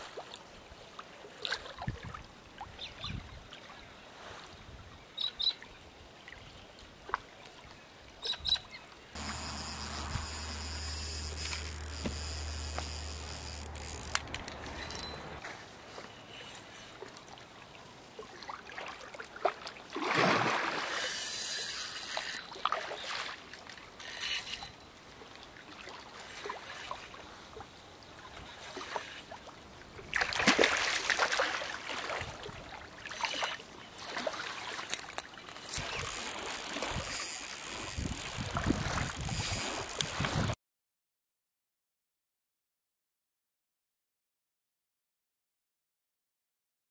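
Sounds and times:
small waves lapping on shore: 0.0s - 5.1s, 9.0s - 40.6s
wind gusting on microphone: 36.8s - 40.6s.

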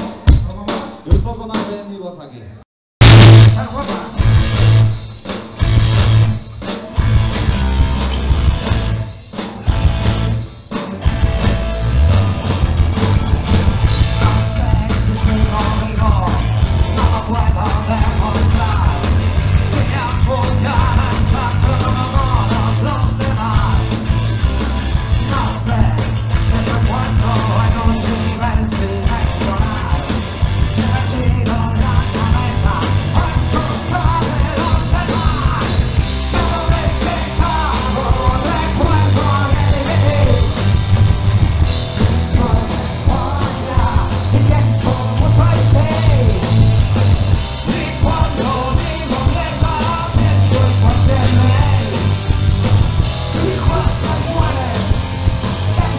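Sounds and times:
drums: 0.0s - 55.9s
bass guitar: 3.0s - 55.9s
electric guitar: 3.0s - 55.9s
person singing into a microphone: 14.2s - 23.9s, 25.2s - 30.2s, 30.8s - 40.5s, 42.2s - 46.6s, 47.6s - 52.1s, 53.3s - 55.0s.

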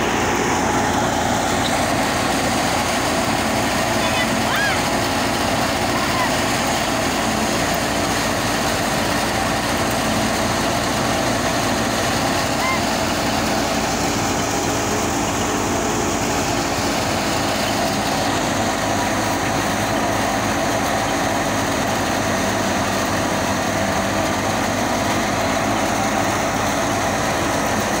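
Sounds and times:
tractor-driven thresher running: 0.0s - 28.0s.

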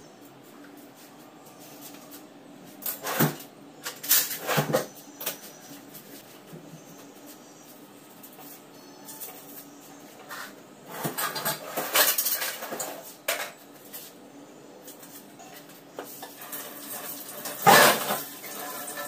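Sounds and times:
dishes and utensils clattering: 10.3s - 13.6s, 15.4s - 19.0s.

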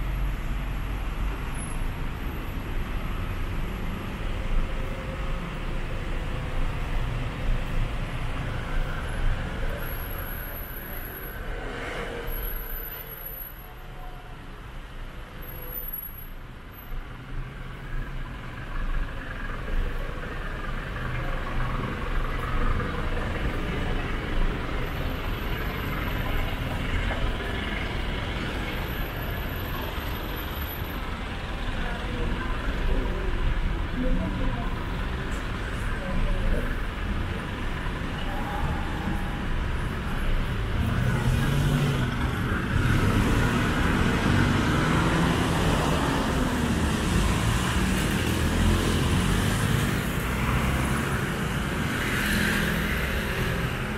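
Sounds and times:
traffic passing: 0.0s - 53.9s.

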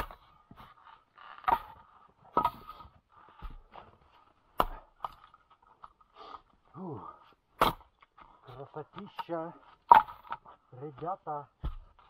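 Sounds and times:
axe chopping firewood: 0.0s - 0.7s, 1.4s - 5.4s, 7.5s - 8.3s, 8.9s - 12.0s.

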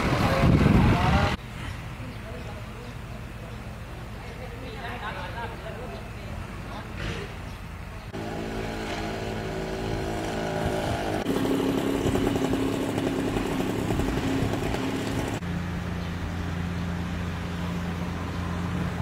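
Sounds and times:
engine running steadily: 6.0s - 19.0s.

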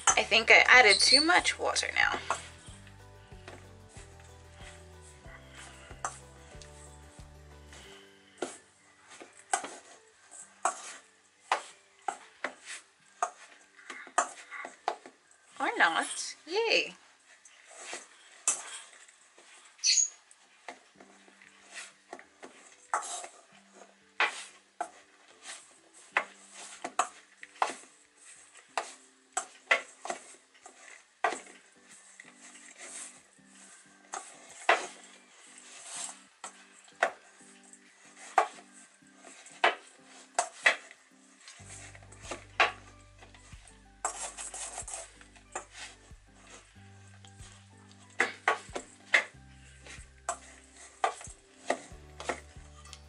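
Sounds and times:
metal spoon scraping mixing bowl: 0.0s - 2.7s, 41.6s - 46.7s
dough kneaded in metal bowl: 8.5s - 16.3s, 24.2s - 53.0s.

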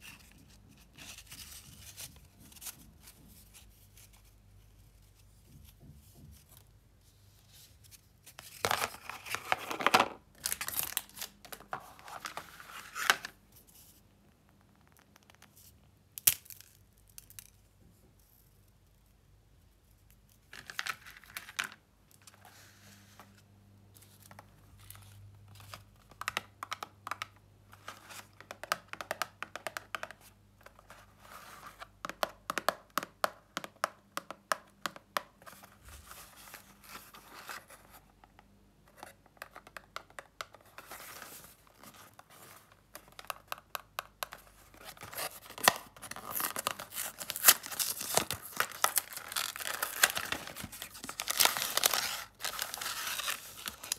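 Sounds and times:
cardboard and foil crinkling: 44.7s - 53.9s.

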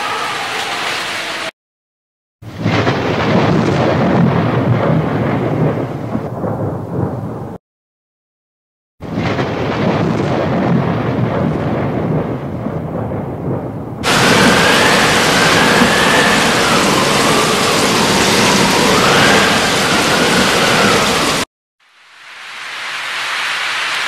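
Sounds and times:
floodwater rushing: 0.0s - 1.5s, 14.0s - 24.0s.

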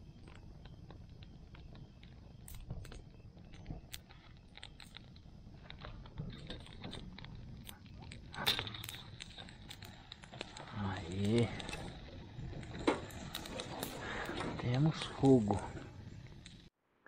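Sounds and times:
wood fire crackling and popping: 0.0s - 16.8s.

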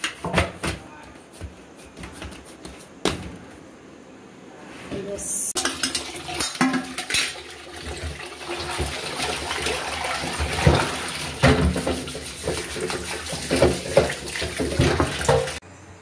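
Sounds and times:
dishes scrubbed by hand: 5.6s - 15.6s
metal vessels knocking sink: 5.6s - 15.6s
tap water running into sink: 5.6s - 15.6s.

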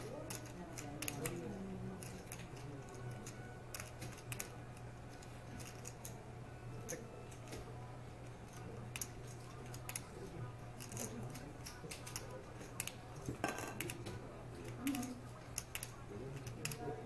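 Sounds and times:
low room hum: 0.0s - 17.0s
poker chips clicking: 5.6s - 6.2s.

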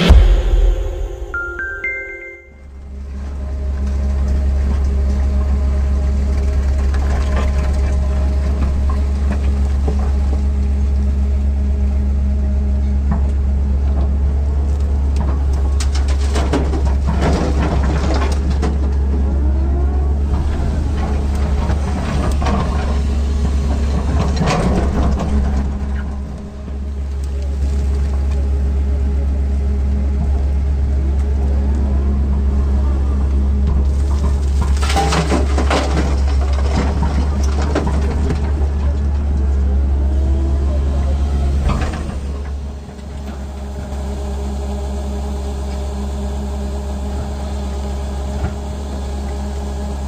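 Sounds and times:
excavator diesel engine running: 2.5s - 50.0s
bucket scraping soil and rock: 33.9s - 38.8s.

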